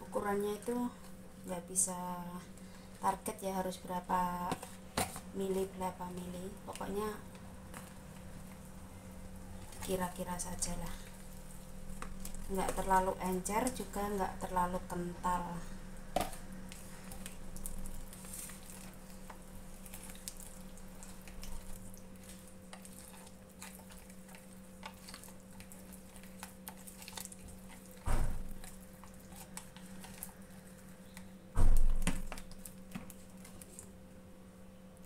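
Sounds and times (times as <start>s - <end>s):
steady low hum: 0.0s - 35.0s
spoon stirring thick batter: 16.2s - 33.9s.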